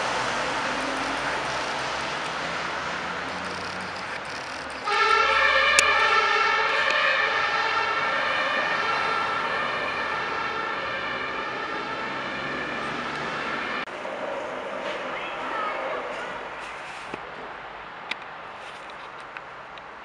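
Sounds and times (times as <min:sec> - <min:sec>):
two-tone ambulance siren: 0:00.0 - 0:13.9.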